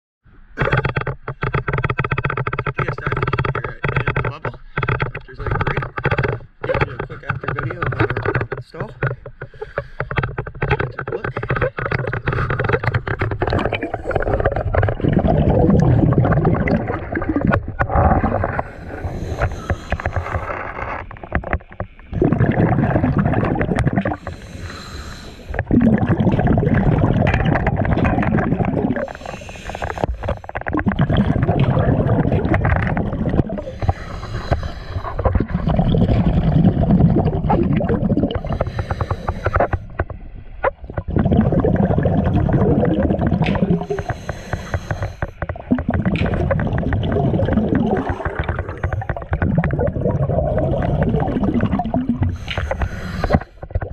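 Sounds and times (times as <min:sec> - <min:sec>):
exhaled air bubbling: 0:00.5 - 0:53.9
regulator inhale hiss: 0:18.6 - 0:20.5, 0:24.2 - 0:25.6, 0:29.0 - 0:30.5, 0:33.6 - 0:35.3, 0:38.4 - 0:39.9, 0:43.8 - 0:45.4, 0:52.3 - 0:53.6.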